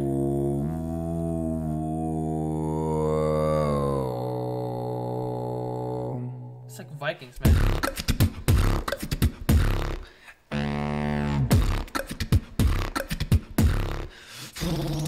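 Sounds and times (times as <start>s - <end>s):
beatboxing mouth percussion: 7.4s - 15.0s.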